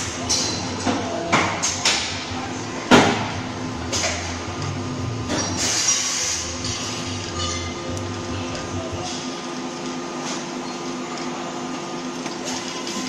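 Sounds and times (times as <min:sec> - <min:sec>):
welding machine hum: 0:01.6 - 0:13.0
welding arc hiss: 0:05.6 - 0:07.0.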